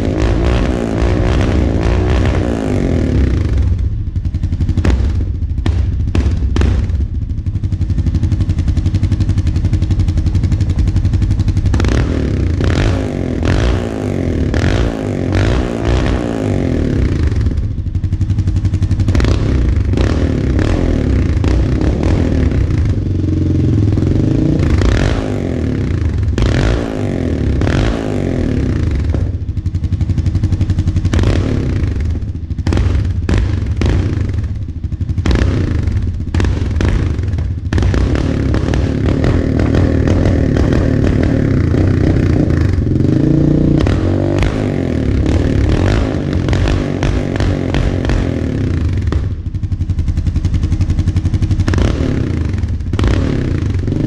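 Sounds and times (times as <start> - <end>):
atv engine idling and revving: 0.0 - 54.0.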